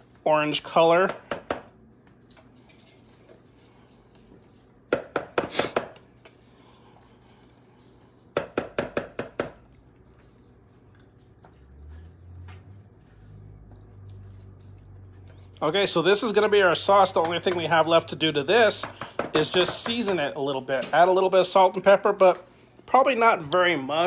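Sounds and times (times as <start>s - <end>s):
wooden spatula tapping a pan: 4.9s - 6.0s, 8.4s - 9.6s, 17.1s - 17.8s, 18.7s - 20.3s.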